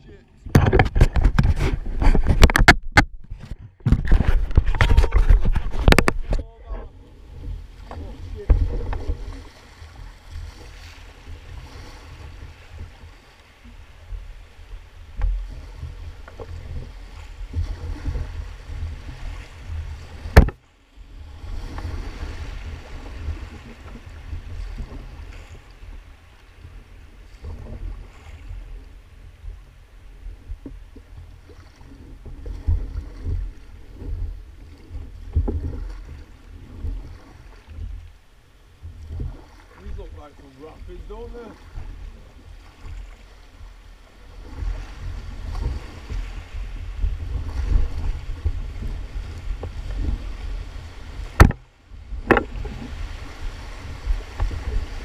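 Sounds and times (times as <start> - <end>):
low microphone rumble: 0.0 - 13.2, 38.7 - 55.0
paddles splashing: 0.0 - 55.0.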